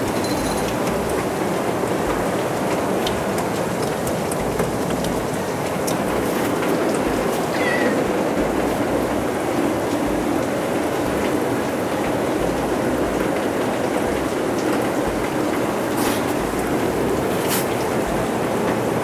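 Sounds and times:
heavy rain downpour: 0.0 - 19.0
cat meowing: 7.5 - 8.1.

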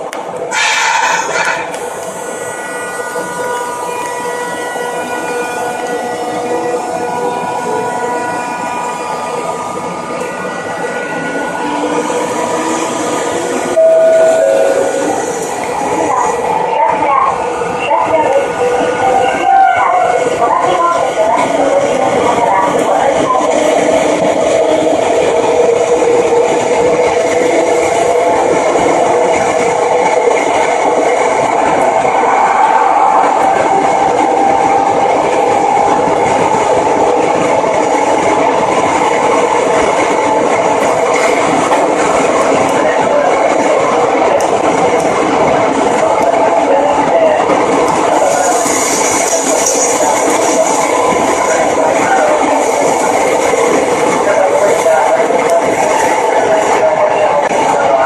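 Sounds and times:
subway train noise: 0.0 - 58.0
two-note descending tone: 13.8 - 15.1.

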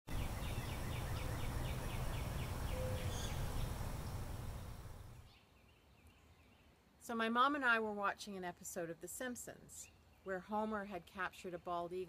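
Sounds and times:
small bird calling: 0.2 - 4.8.

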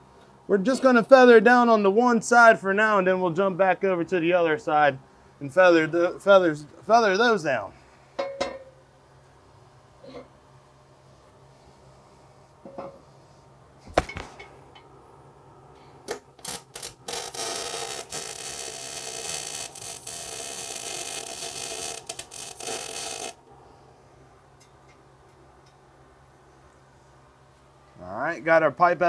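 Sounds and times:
welding arc crackling: 16.1 - 23.4.

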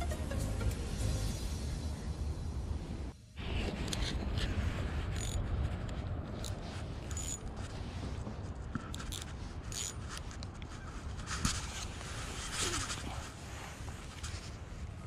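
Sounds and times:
steady low rumble: 0.0 - 9.7
fishing reel scraping and rubbing: 5.1 - 5.4, 6.3 - 7.6, 8.9 - 10.3.

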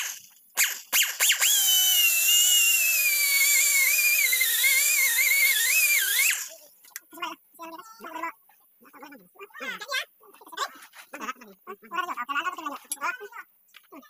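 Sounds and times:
die grinder whining: 0.0 - 6.7.

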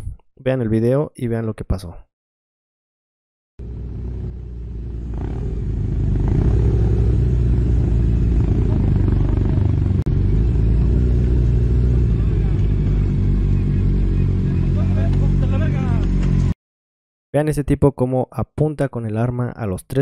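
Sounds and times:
motorcycle engine running: 3.6 - 16.5.

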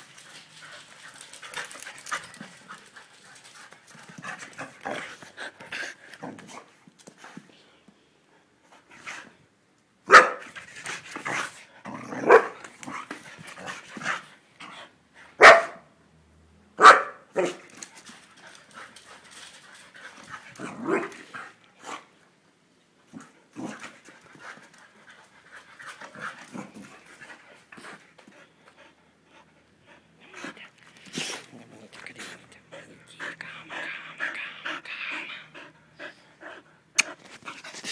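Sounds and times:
dog barking: 10.1 - 10.4, 12.2 - 12.6, 15.4 - 15.9, 16.8 - 17.6.

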